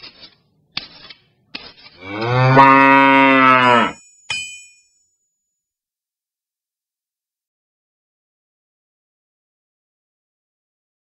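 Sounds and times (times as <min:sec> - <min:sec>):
cow mooing: 0:02.0 - 0:04.0.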